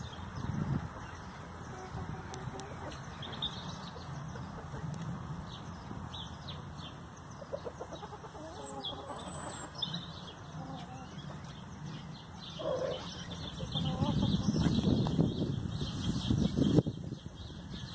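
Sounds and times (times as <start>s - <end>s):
chickens clucking: 0.7s - 5.3s, 7.3s - 15.3s.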